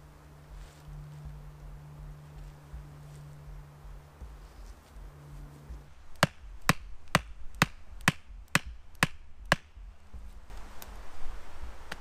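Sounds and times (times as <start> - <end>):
hatchet knocking wooden stake: 6.1 - 10.2.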